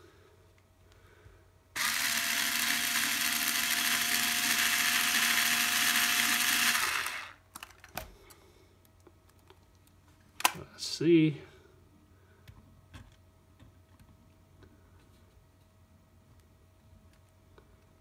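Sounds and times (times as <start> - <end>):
cordless drill running: 1.8 - 7.4.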